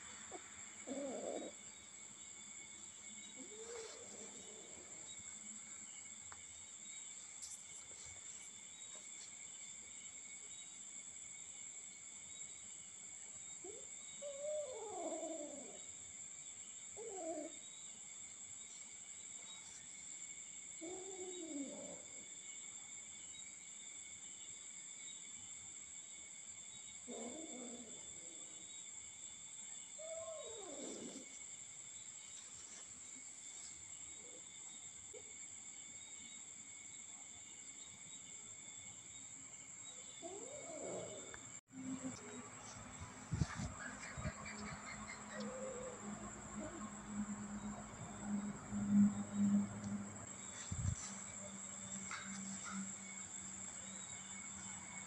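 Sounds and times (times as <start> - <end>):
crickets droning: 0.0 - 55.0.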